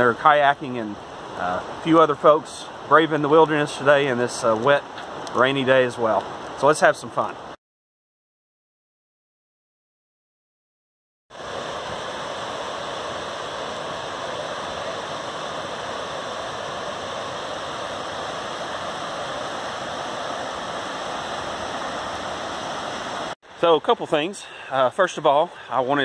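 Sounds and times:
water rushing over rapids: 11.3 - 26.0.

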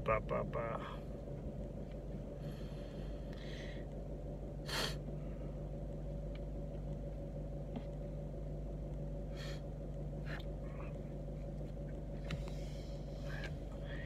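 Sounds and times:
car cabin hum: 0.0 - 14.0
man sniffing: 4.6 - 5.0.

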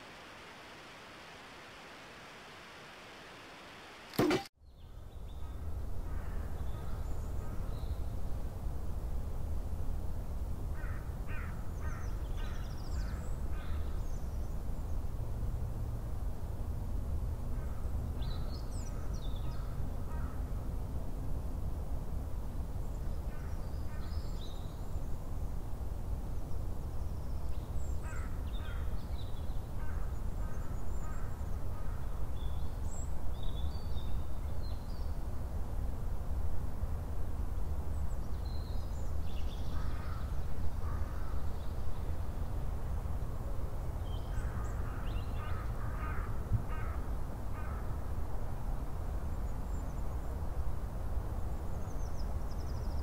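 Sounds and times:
crow cawing: 44.4 - 47.8.

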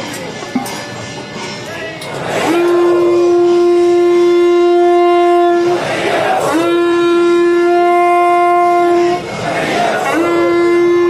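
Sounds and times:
conch shell blown: 2.3 - 9.4, 10.0 - 11.0.

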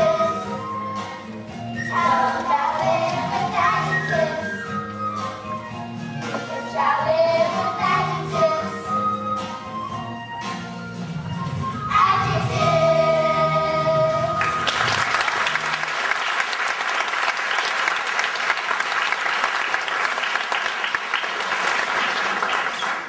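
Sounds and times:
children's chorus singing: 1.9 - 4.6
audience applause: 14.4 - 23.0.

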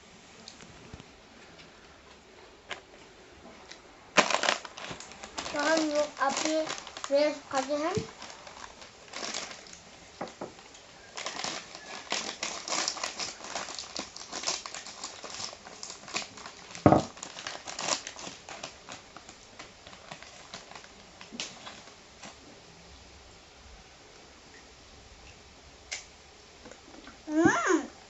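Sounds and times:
snack packaging crinkling: 2.6 - 22.4.

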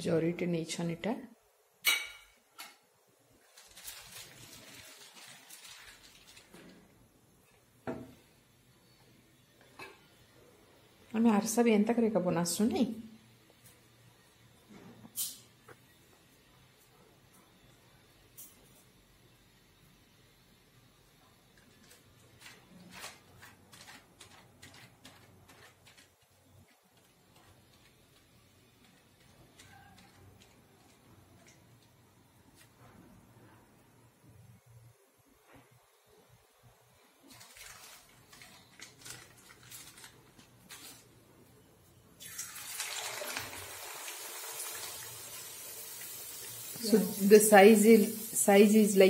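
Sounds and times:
plastic sheet crinkling: 3.4 - 6.9, 21.6 - 31.6, 37.2 - 41.3
dough sizzling in hot oil: 42.2 - 49.0.

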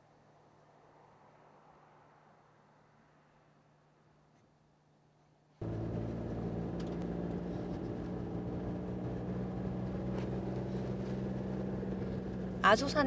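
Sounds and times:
road and tyre noise: 0.0 - 13.0
car engine hum: 5.6 - 13.0.

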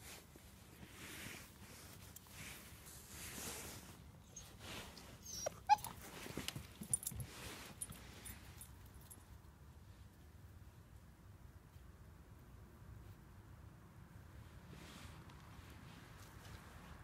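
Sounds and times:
soft rustling: 0.0 - 12.1, 14.4 - 17.0
puppy whimpering: 4.3 - 6.1.

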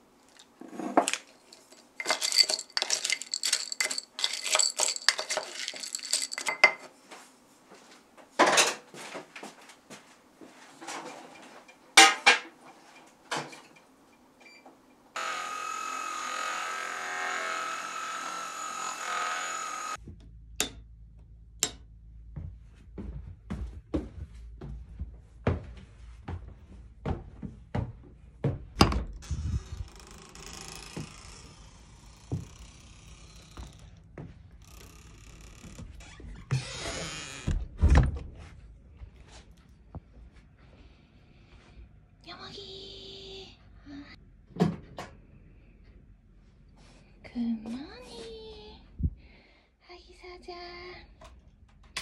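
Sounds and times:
chopsticks clinking in a bowl: 1.0 - 6.9.

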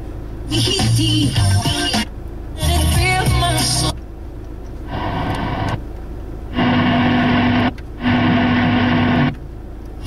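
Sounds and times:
steady low hum tone: 0.0 - 10.0
radio static hiss: 4.8 - 9.4.

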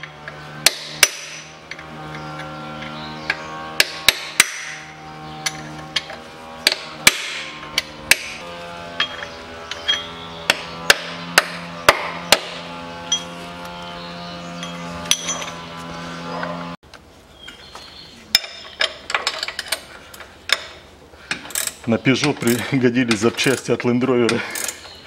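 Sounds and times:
hammer striking metal: 0.6 - 1.5, 3.8 - 5.6, 6.6 - 8.4, 9.0 - 13.3.

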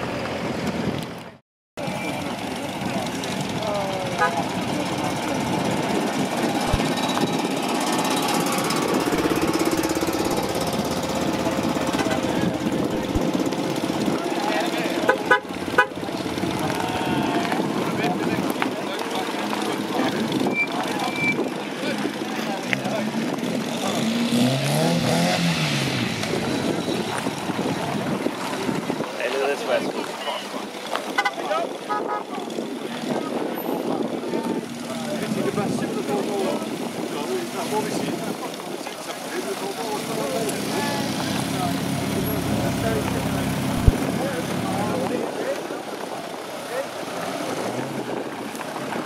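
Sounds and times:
car engine passing slowly: 0.0 - 21.0, 34.0 - 49.0
small car engine chugging: 1.8 - 24.0.

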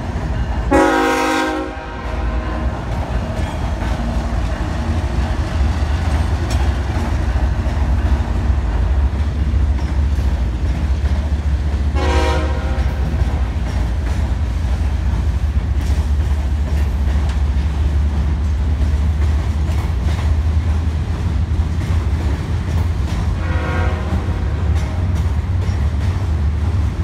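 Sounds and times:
freight train rumble on bridge: 0.0 - 27.0
train horn blast: 0.6 - 3.2, 11.9 - 13.5, 23.3 - 25.0.

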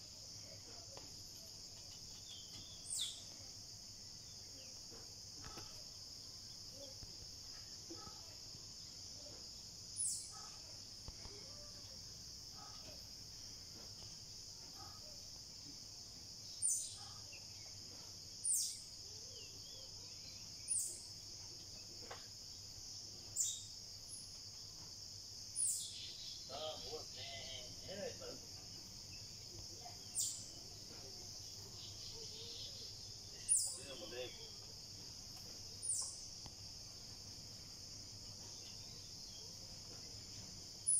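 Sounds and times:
insects chirping chorus: 0.0 - 40.9
faint bird chirps: 0.1 - 3.6, 4.2 - 13.1, 14.6 - 15.8, 16.4 - 22.2, 23.4 - 24.4, 25.5 - 28.4, 29.1 - 34.7, 35.7 - 36.4.

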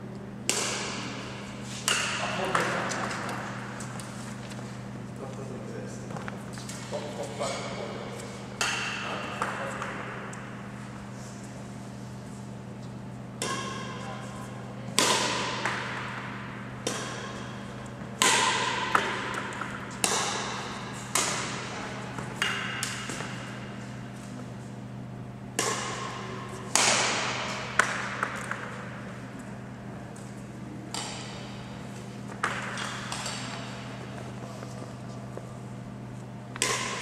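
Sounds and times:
badminton racket hitting shuttlecock: 0.4 - 4.2, 13.4 - 14.3, 14.9 - 23.9, 25.6 - 29.0, 32.3 - 34.0, 36.5 - 37.0.

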